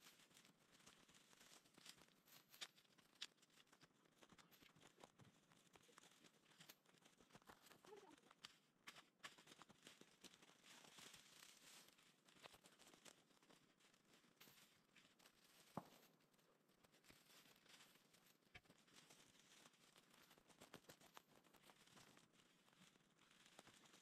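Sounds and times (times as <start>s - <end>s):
dry brush crackling and rustling: 0.0s - 24.0s
small twigs snapping: 0.3s - 5.1s.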